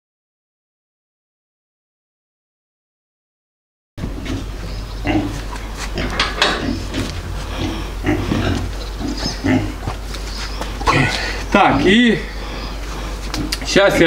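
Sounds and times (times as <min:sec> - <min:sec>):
piglets grunting: 0:04.0 - 0:14.0
steady low rumble: 0:04.0 - 0:14.0.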